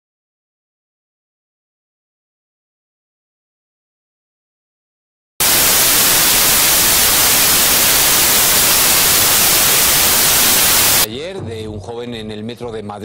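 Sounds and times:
television static hiss: 5.4 - 11.1.

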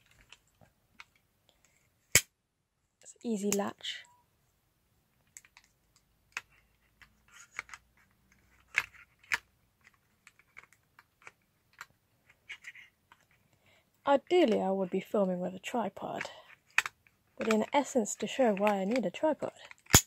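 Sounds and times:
plastic clicks and knocks of camera: 8.6 - 11.9, 16.7 - 17.6, 18.6 - 20.0.

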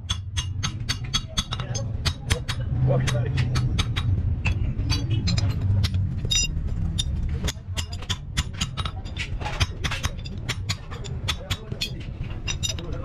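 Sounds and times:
mallet striking steel: 0.0 - 12.9
low rumble: 1.6 - 11.3.

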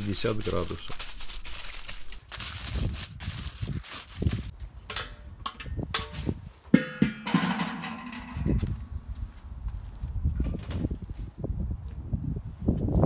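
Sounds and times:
metal lid clank: 4.9 - 8.8
metal grill lid handling knocks: 6.8 - 8.8.

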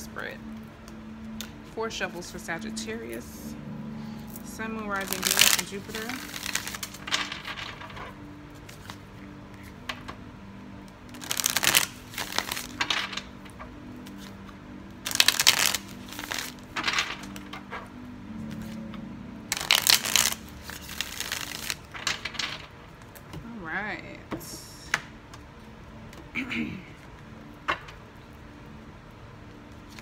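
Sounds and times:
cards being shuffled: 5.0 - 10.2, 11.1 - 23.2, 29.7 - 30.0.

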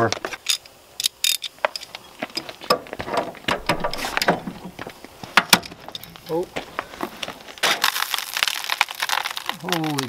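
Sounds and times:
metal parts clinking and clicking: 0.4 - 2.6.

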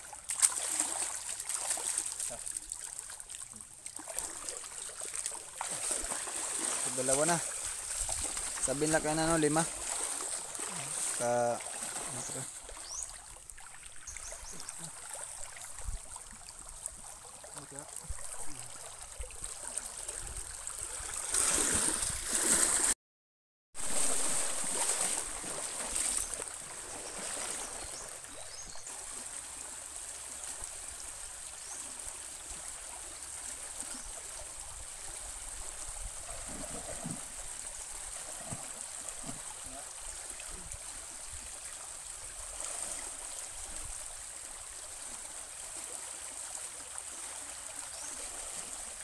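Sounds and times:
moving water: 0.0 - 23.0, 23.8 - 49.0
water sloshing and splashing: 0.0 - 23.0, 23.8 - 30.8, 35.5 - 40.7.

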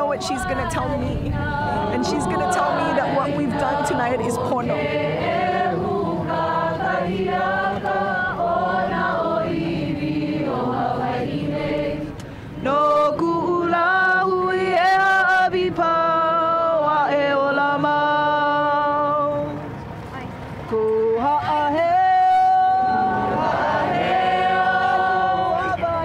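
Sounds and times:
crowd chanting: 0.0 - 14.2, 22.4 - 26.0
close voices singing: 0.0 - 19.7, 20.7 - 26.0.

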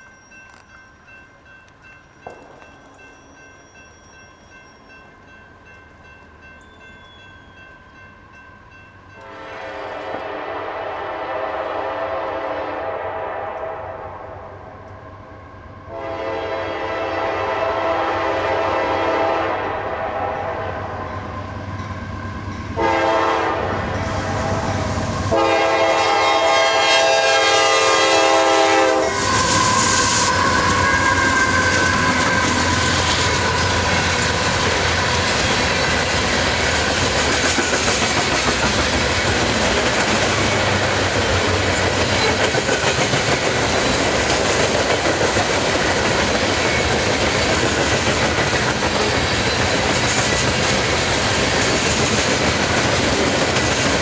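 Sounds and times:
crossing bells ringing: 0.0 - 9.8, 20.9 - 25.6
train engine and wheel noise: 0.0 - 54.0
locomotive horn blasts: 9.2 - 14.5, 15.9 - 21.1, 22.8 - 32.7.

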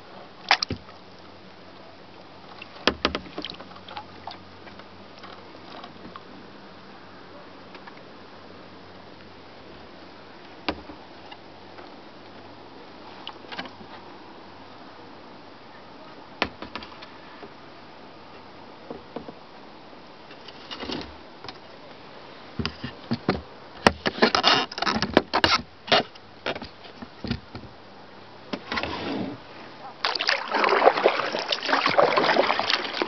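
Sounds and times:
paddle clicking against hull: 0.4 - 1.0, 2.5 - 6.3
paddle splashes: 28.6 - 33.0.

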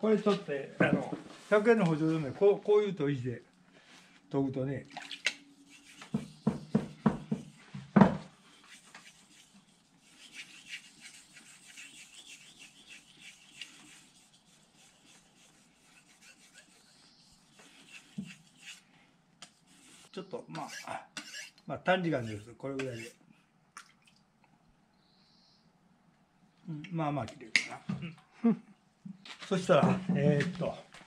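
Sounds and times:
knife scraping on whetstone: 5.4 - 7.6, 8.4 - 23.2.

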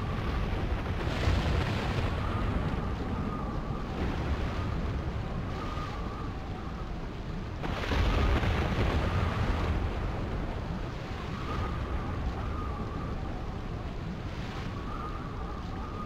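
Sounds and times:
wind and rain rushing: 0.0 - 16.0
faint wavering whistle: 2.1 - 4.7, 5.3 - 6.9, 11.1 - 16.0
low thunder rumble: 7.4 - 14.3.

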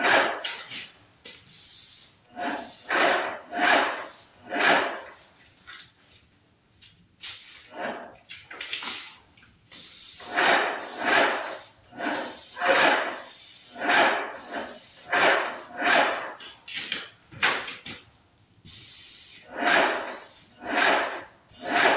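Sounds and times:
paint sprayer hissing: 1.4 - 5.3, 7.2 - 8.0, 8.8 - 16.4, 18.7 - 21.9.

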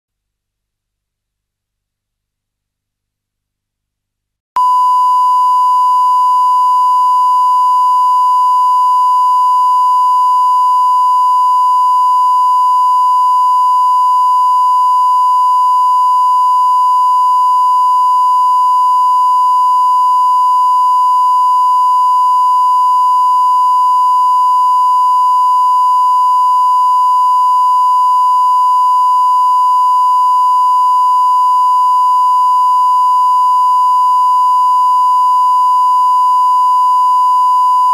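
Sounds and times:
steady sine test tone: 4.6 - 37.9.

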